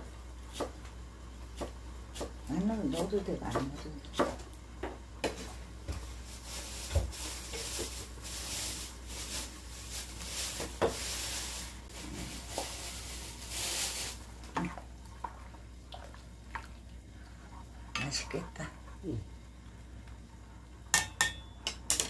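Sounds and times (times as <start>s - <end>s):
soup simmering and bubbling: 7.2s - 17.9s.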